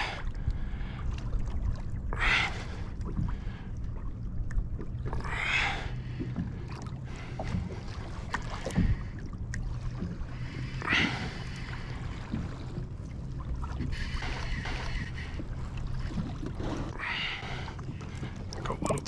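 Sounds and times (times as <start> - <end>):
water sloshing against kayak hull: 0.0 - 19.0.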